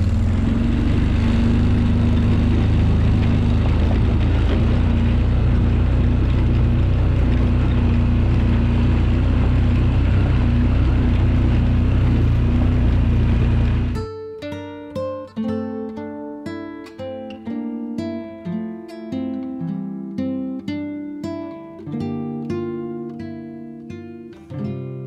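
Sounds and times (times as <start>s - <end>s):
atv engine running: 0.0s - 14.0s.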